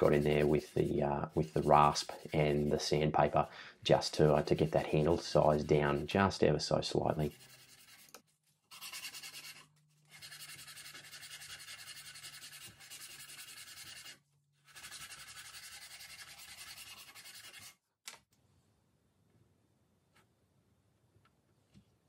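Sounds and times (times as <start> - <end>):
sandpaper rasping on bat handle: 0.0 - 3.1, 4.0 - 6.2, 7.1 - 17.8.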